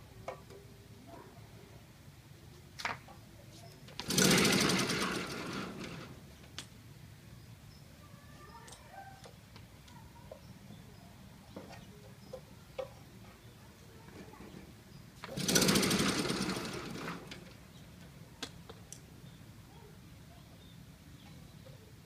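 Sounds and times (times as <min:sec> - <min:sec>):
engine pull-start clatter: 0:04.0 - 0:06.2, 0:15.2 - 0:17.6.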